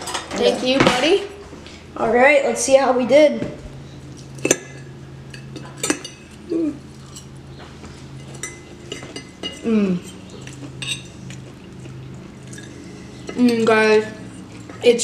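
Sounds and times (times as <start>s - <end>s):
forks clinking on ceramic plate: 4.4s - 6.4s, 8.2s - 11.3s.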